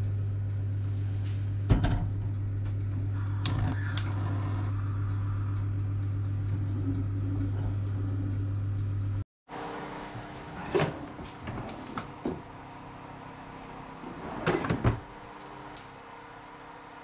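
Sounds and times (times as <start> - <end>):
steady low hum: 0.0 - 17.0
burner igniter clicks: 3.4 - 4.2.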